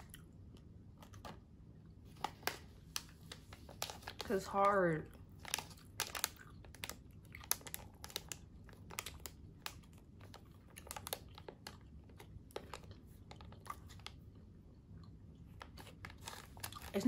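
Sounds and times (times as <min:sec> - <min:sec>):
person chewing hard candy: 0:00.0 - 0:01.5, 0:05.0 - 0:17.0.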